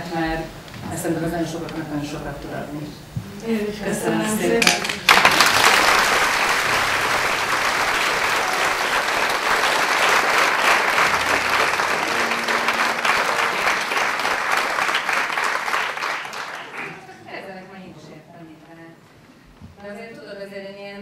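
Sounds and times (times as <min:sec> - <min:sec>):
audience applauding: 0:04.8 - 0:17.2.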